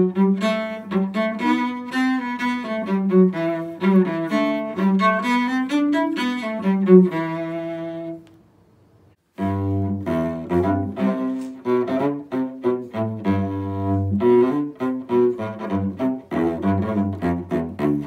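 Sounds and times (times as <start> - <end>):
solo cello playing: 0.0 - 8.2, 9.2 - 18.0.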